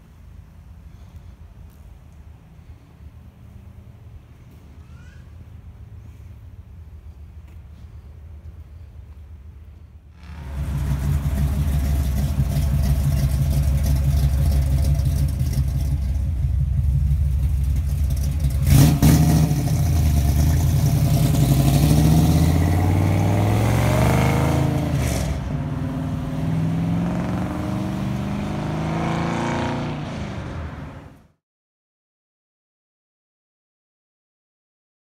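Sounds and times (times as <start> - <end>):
car engine revving: 10.2 - 31.3.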